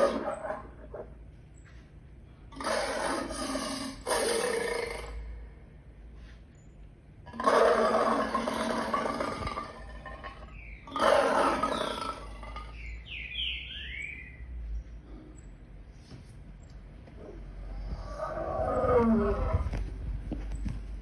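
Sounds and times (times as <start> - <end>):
lion roaring: 0.0 - 1.1, 2.5 - 5.3, 7.3 - 12.7, 17.2 - 19.6.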